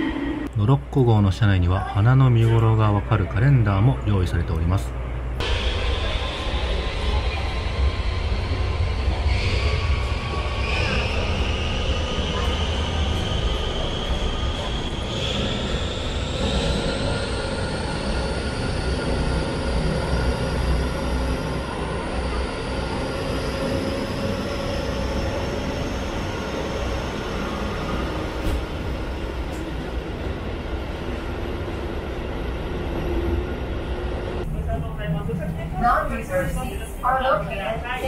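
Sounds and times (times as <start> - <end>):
diesel locomotive engine: 0.0 - 38.0
low rumble of running train: 0.0 - 38.0.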